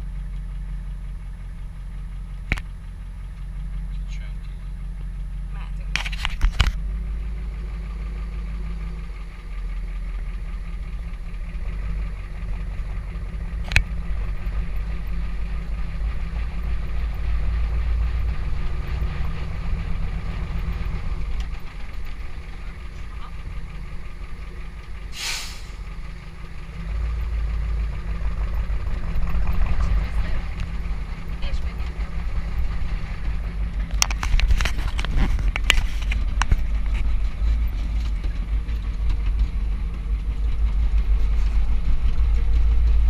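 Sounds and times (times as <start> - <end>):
truck engine low rumble: 0.0 - 43.0
short hiss: 25.1 - 25.8.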